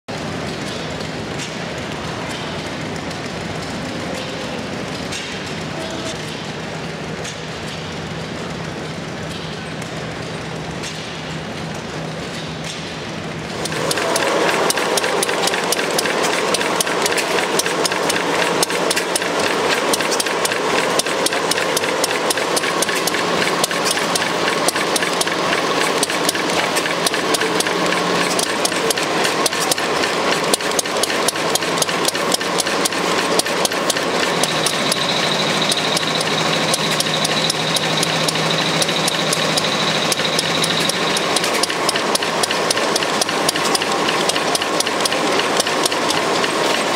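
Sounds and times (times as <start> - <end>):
stationary engine clattering: 0.1 - 46.9
hall noise: 13.2 - 46.9.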